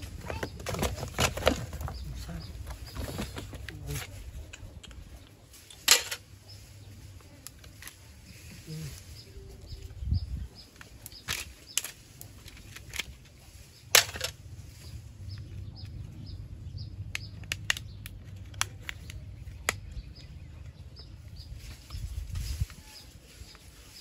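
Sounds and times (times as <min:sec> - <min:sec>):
phones being handled: 0:00.0 - 0:05.0, 0:05.6 - 0:06.3, 0:10.7 - 0:14.4.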